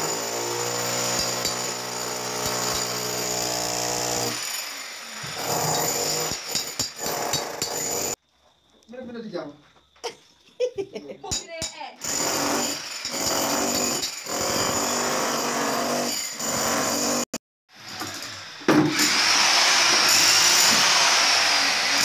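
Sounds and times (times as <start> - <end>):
demolition hammer breaking concrete: 0.0 - 4.6.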